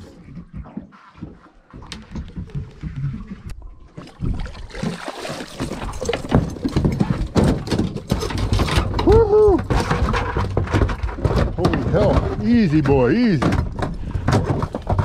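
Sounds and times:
water splashing: 0.0 - 8.1
fish thrashing on deck: 4.0 - 15.0.

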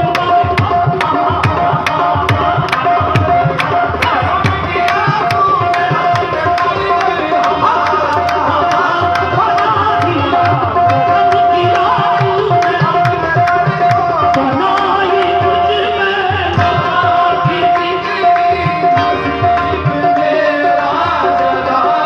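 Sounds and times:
tabla and harmonium music: 0.0 - 22.0
sharp handclaps: 0.2 - 15.4.

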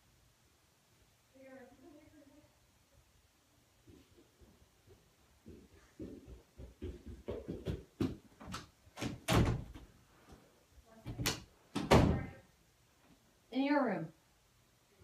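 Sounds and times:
knocks and thumps of movement: 3.8 - 10.0.

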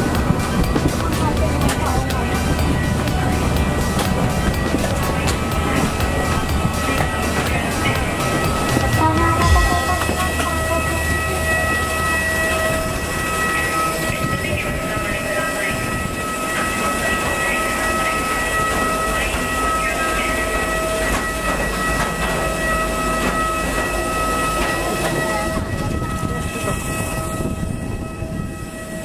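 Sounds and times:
low rumble: 0.0 - 15.0
aircraft turbines whining: 0.0 - 29.0.

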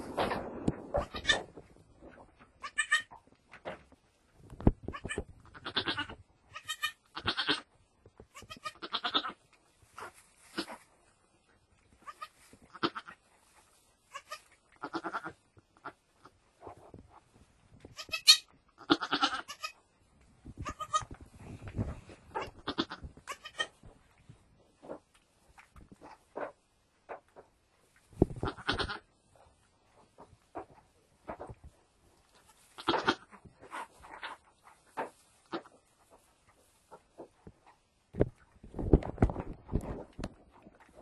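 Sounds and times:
goats bleating: 8.4 - 9.4, 18.0 - 19.8.

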